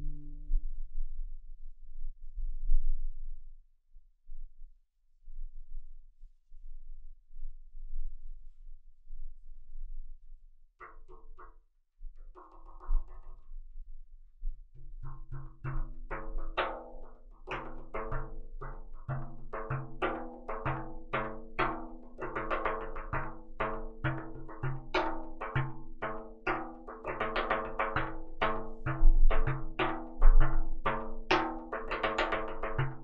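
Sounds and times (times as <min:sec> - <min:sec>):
frame drum strokes: 0:14.8 - 0:33.0.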